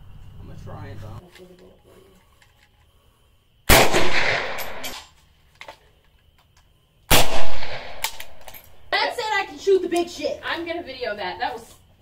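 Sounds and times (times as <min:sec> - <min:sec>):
suppressed gunshots: 0:03.7 - 0:05.0, 0:07.1 - 0:08.4.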